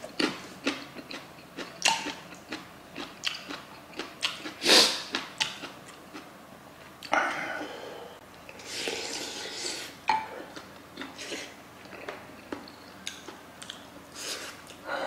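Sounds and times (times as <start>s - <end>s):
chewing and smacking: 0.1s - 6.3s, 10.5s - 13.9s
slurping from a spoon: 8.6s - 10.0s.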